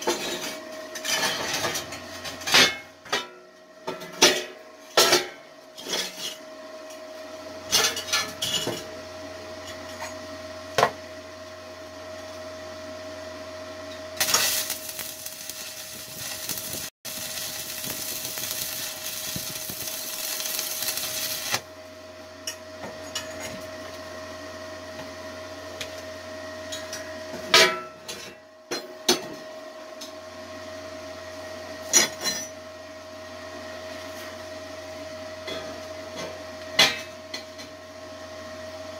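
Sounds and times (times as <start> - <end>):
steady hum: 10.0 - 23.6
welding arc crackling: 14.2 - 21.7.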